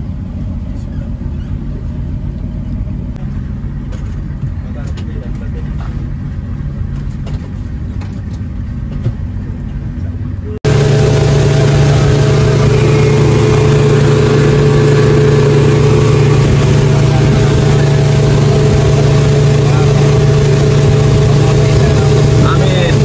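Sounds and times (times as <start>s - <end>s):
outboard motor running: 0.0s - 23.0s
water rushing from wake: 10.6s - 23.0s.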